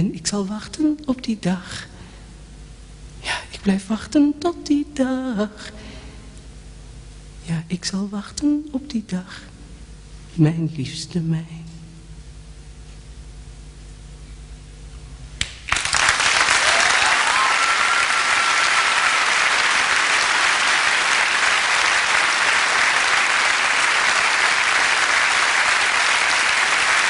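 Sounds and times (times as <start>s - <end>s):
audience applause: 15.4s - 27.0s.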